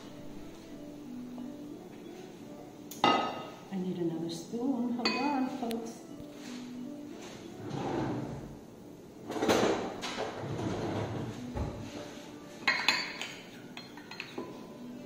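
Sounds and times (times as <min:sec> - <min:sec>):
metal spoon clinking on glass bowl: 0:12.6 - 0:14.5.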